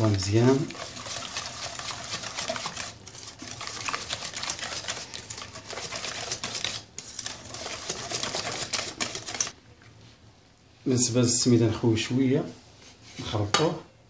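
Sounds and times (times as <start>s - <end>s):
whisk beating batter in metal bowl: 0.0s - 9.6s.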